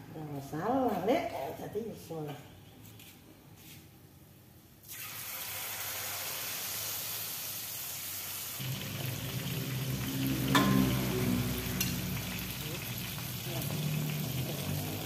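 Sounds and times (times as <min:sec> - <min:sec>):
sizzling hiss from pot: 0:04.8 - 0:15.0
low hum: 0:08.6 - 0:13.3.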